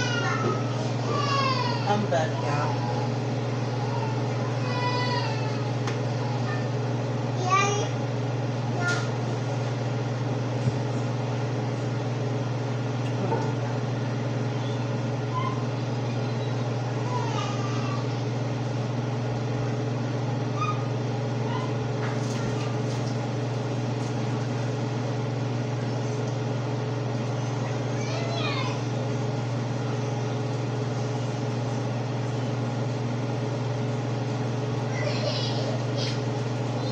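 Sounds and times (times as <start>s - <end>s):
low mechanical hum: 0.0s - 36.9s.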